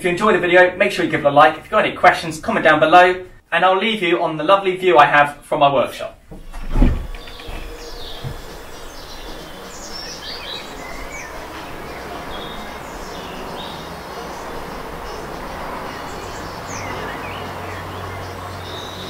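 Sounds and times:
low hum: 0:06.2 - 0:19.0
outdoor background noise: 0:06.2 - 0:19.0
birds chirping and singing: 0:06.4 - 0:19.0.

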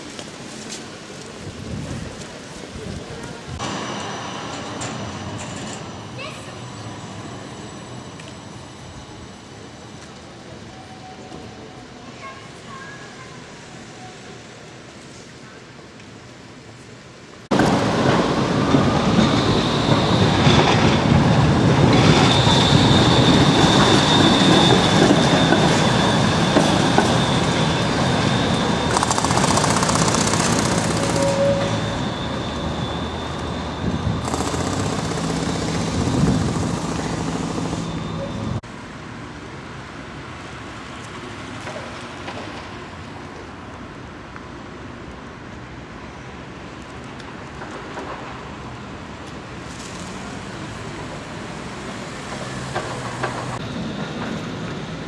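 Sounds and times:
street traffic noise: 0:00.0 - 0:55.0
tram rumbling on rails: 0:00.0 - 0:55.0
high-pitched tram squeal: 0:03.6 - 0:14.5, 0:17.6 - 0:38.6, 0:51.9 - 0:55.0.

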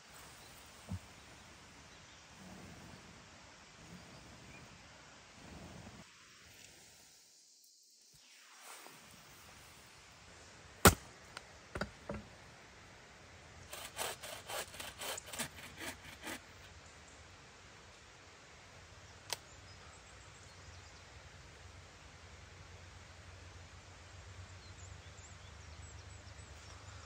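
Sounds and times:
steady hiss: 0:00.0 - 0:14.7
hand saw cutting wood: 0:13.7 - 0:16.7.

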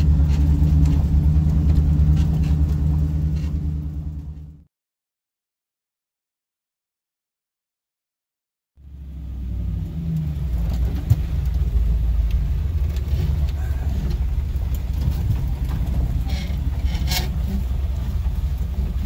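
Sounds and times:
engine deep rumble: 0:00.0 - 0:04.7, 0:08.8 - 0:19.0.

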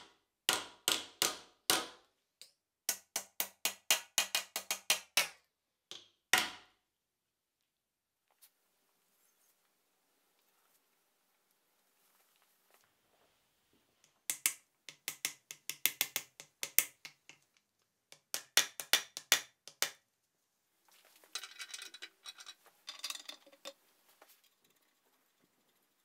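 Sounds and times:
light metal rattling and scraping: 0:20.9 - 0:25.5.

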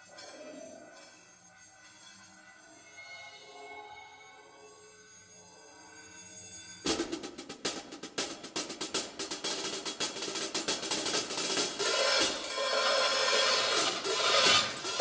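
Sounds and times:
cymbal struck rapidly with drumsticks: 0:06.9 - 0:15.0.

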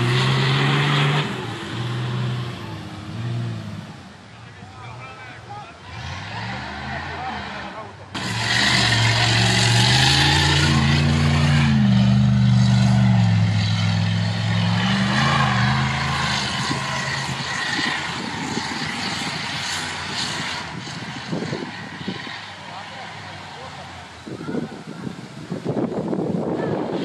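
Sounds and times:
off-road vehicle engine revving: 0:00.0 - 0:27.0.

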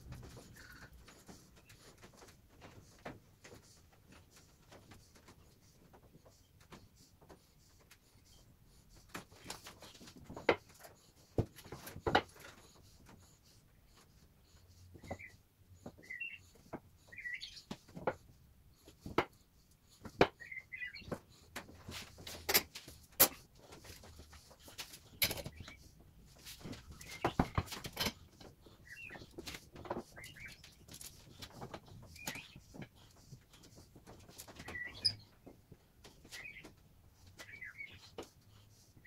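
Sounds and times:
bird chirps: 0:16.0 - 0:17.7, 0:34.6 - 0:35.4, 0:37.4 - 0:38.1
wooden knocks and clatter: 0:26.4 - 0:28.6.

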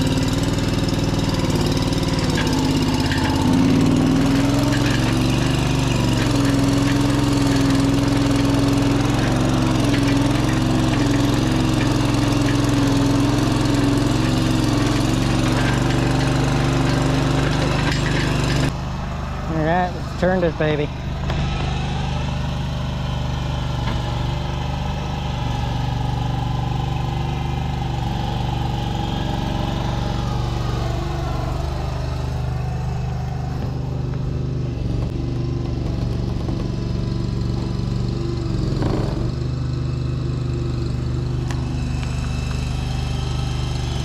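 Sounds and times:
machine engine running: 0:00.0 - 0:44.0.

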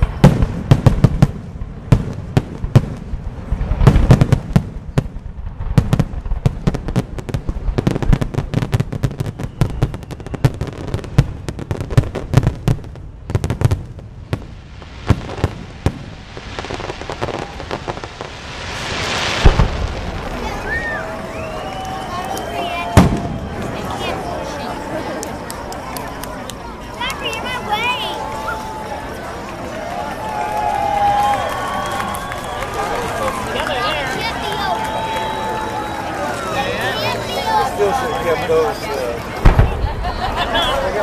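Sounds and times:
loud firework bang: 0:00.0 - 0:21.9, 0:22.8 - 0:24.2, 0:39.4 - 0:40.7
fireworks bursts and crackles: 0:00.0 - 0:41.0
firework hiss: 0:02.1 - 0:23.8.

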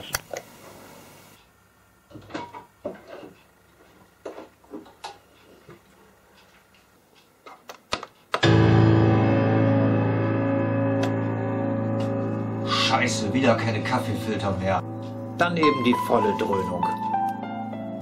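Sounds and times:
loud music from stereo: 0:08.4 - 0:13.2.

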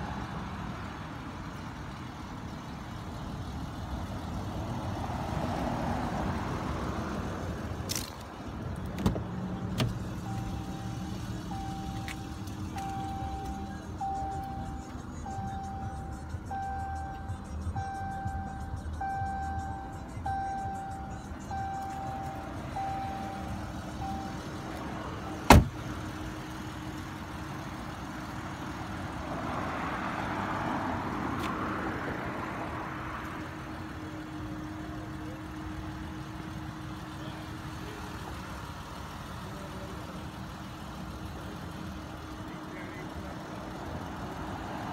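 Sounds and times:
car door slamming: 0:08.8 - 0:10.7, 0:25.2 - 0:26.0
dashboard warning chime beeping: 0:09.5 - 0:25.7.

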